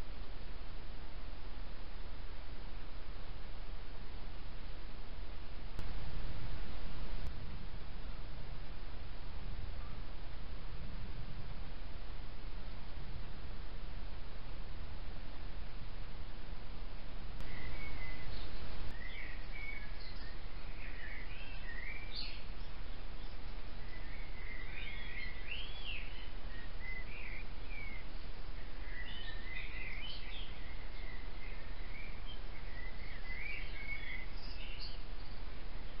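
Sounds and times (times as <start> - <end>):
rush of noise: 0.0 - 21.0
songbird singing: 0.0 - 36.0
steady low hiss: 0.0 - 36.0.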